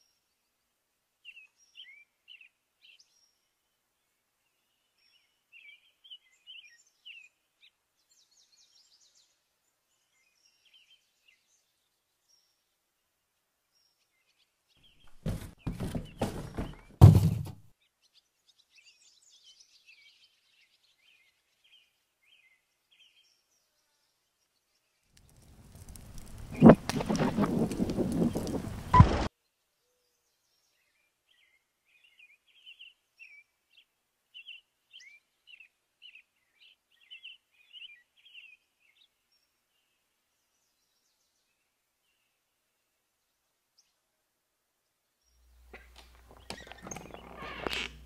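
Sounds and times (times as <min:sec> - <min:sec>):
cardboard box knocks and thumps: 0:15.1 - 0:17.6
small birds chirping: 0:17.8 - 0:42.4, 0:45.2 - 0:48.0.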